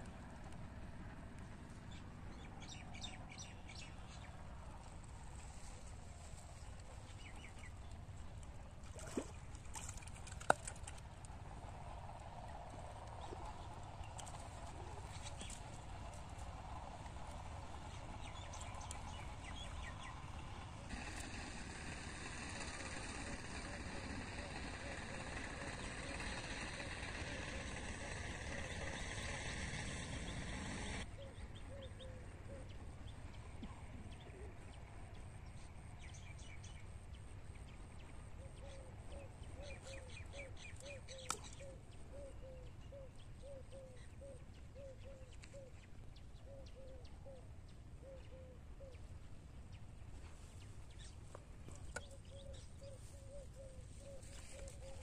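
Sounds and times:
loud steady noise: 20.5 - 31.0.

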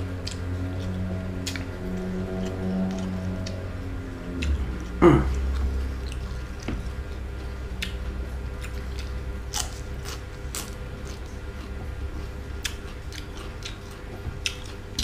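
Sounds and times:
wet chewing: 4.3 - 15.0
crunching raw vegetables: 4.4 - 15.0.

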